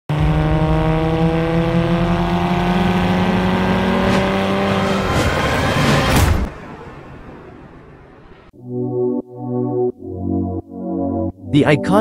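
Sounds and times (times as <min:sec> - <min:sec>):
car engine accelerating: 0:00.1 - 0:08.4.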